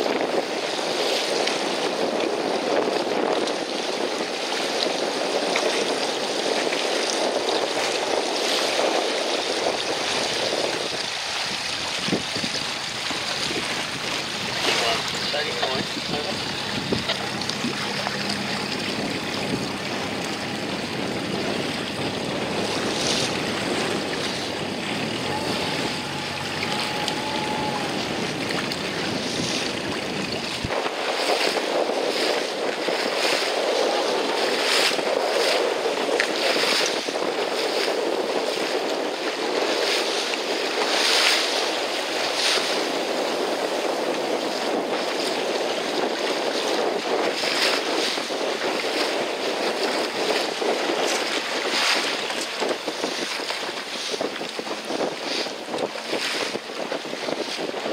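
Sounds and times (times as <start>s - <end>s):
choppy water slapping a boat: 0.0s - 57.9s
wind on microphone: 0.0s - 57.9s
low rumble: 12.0s - 30.8s.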